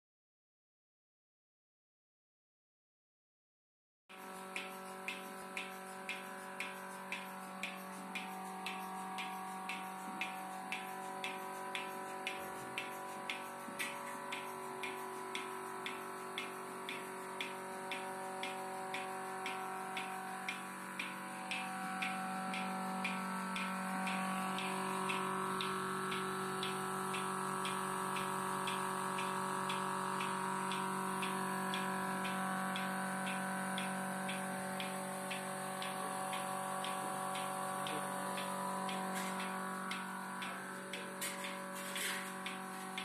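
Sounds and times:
milking machine motor humming: 0:04.1 - 0:43.0
pulsator clicking: 0:04.1 - 0:43.0.

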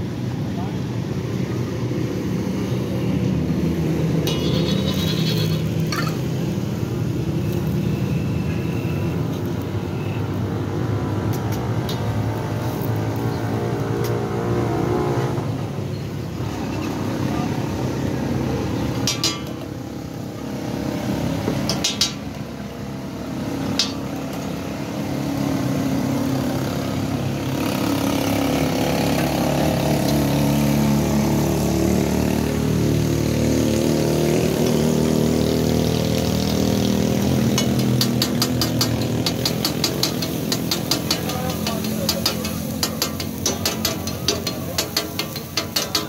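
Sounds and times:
vehicle engine humming: 0:00.6 - 0:46.0
oil sizzling: 0:03.7 - 0:07.8, 0:37.0 - 0:46.0
metal spatula striking iron griddle: 0:04.2 - 0:06.3, 0:19.0 - 0:19.7, 0:21.6 - 0:22.3, 0:37.5 - 0:46.0.

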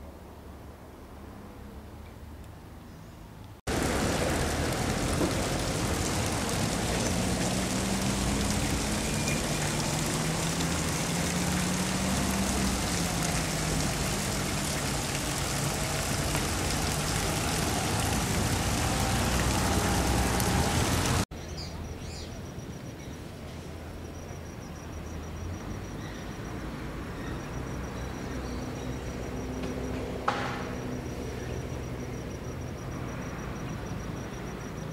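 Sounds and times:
hiss of passing vehicles: 0:00.0 - 0:21.3, 0:22.0 - 0:34.9
engine hum: 0:03.5 - 0:21.3.

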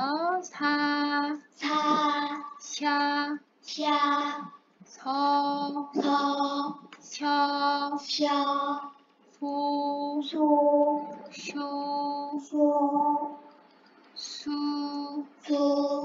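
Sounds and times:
woman pronouncing syllables: 0:00.0 - 0:03.5, 0:04.2 - 0:08.0.

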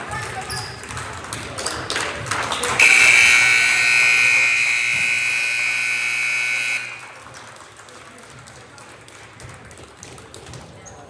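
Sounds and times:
scoreboard buzzer: 0:02.8 - 0:07.2.

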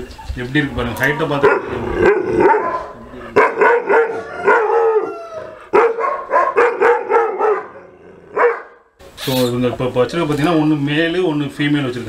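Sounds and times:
dog barking loudly: 0:01.3 - 0:08.8.

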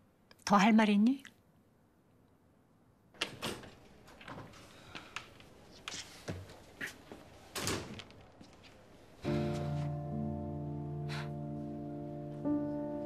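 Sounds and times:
background music of held notes: 0:09.2 - 0:13.0.

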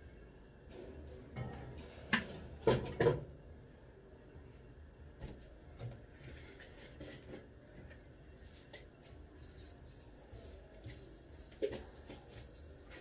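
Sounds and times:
kitchen items clicking and clattering: 0:08.6 - 0:13.0.

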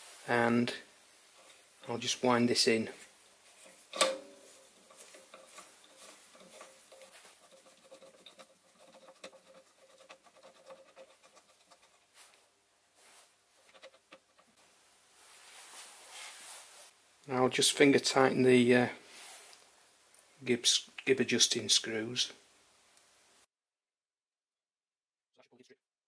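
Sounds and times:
lathe slide being wound by hand: 0:03.6 - 0:11.9.

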